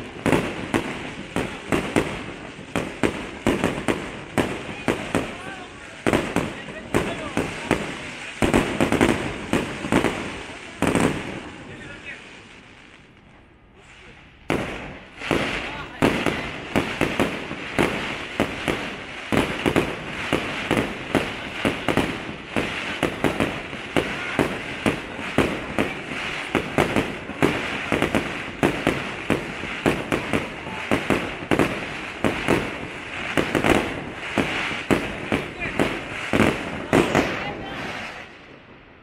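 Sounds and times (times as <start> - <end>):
constant hiss: 0.0 - 39.0
fireworks bangs: 0.0 - 39.0.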